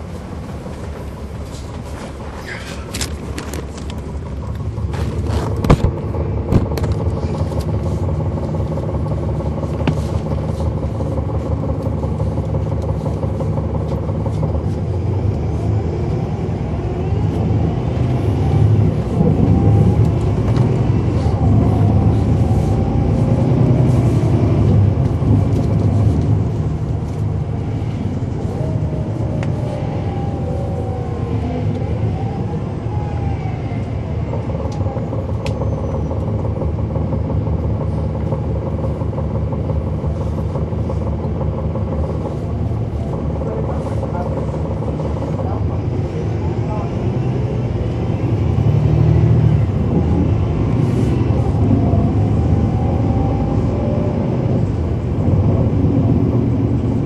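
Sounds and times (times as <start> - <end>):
bus diesel engine running: 0.0 - 57.0
transmission whining: 0.0 - 57.0.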